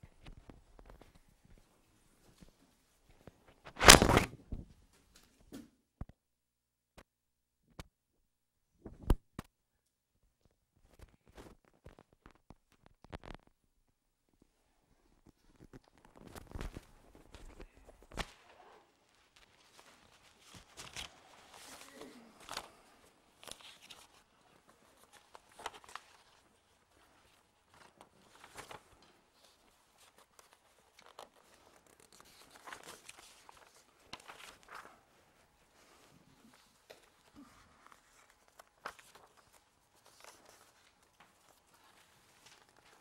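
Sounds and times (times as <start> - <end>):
papers rustling: 0.1 - 5.4, 15.2 - 43.0.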